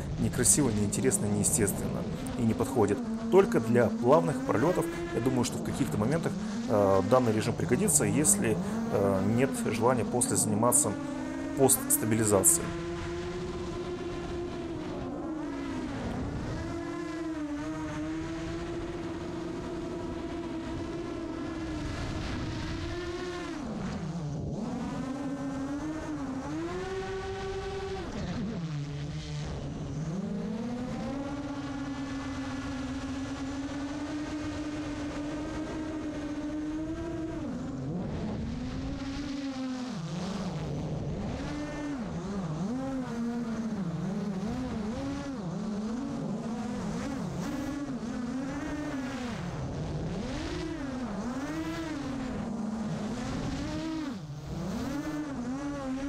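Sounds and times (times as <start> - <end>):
quadcopter motors whining: 0.0 - 56.0.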